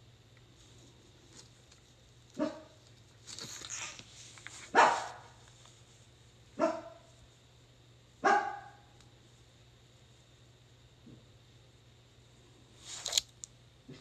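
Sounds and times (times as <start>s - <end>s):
dog barking: 2.4s - 2.8s, 4.7s - 5.4s, 6.6s - 7.1s, 8.2s - 8.8s.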